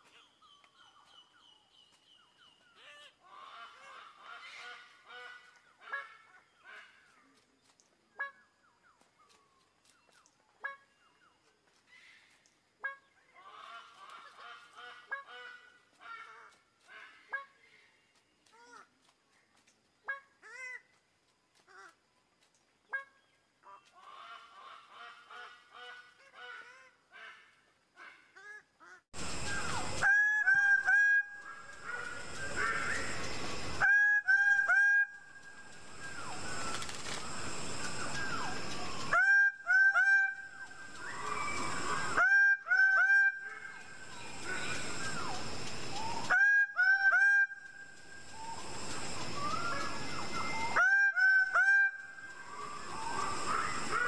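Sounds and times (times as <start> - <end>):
background hiss: 0.0 - 54.0
rapid overlapping bird calls: 29.2 - 54.0.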